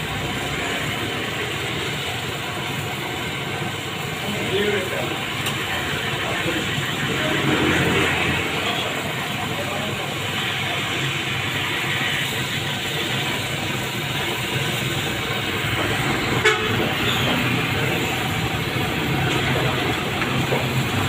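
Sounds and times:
road traffic: 0:00.0 - 0:21.0
faint voices: 0:04.2 - 0:12.3.

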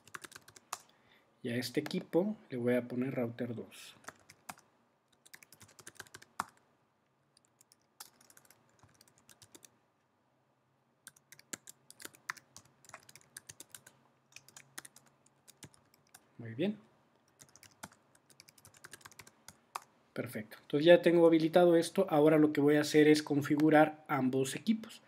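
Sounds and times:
typing on keyboard: 0:00.0 - 0:00.9, 0:04.0 - 0:04.6, 0:05.2 - 0:06.6, 0:07.4 - 0:09.7, 0:11.1 - 0:16.2, 0:17.3 - 0:19.9.

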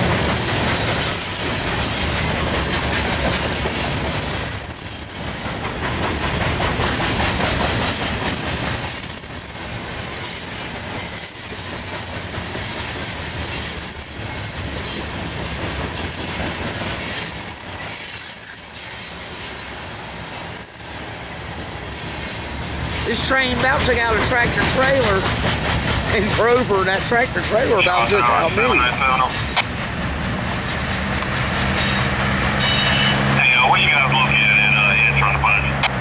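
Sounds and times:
train wheels rumbling on rails: 0:00.0 - 0:36.0
high-pitched wheel squeal: 0:15.3 - 0:19.7.

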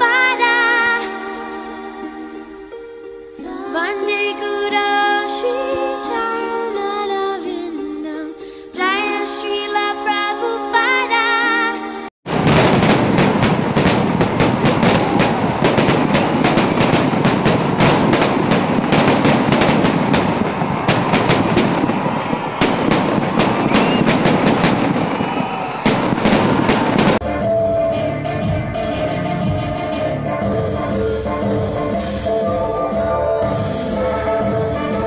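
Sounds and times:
music: 0:00.0 - 0:12.1, 0:27.0 - 0:35.0
firecrackers bursting: 0:12.3 - 0:27.2.

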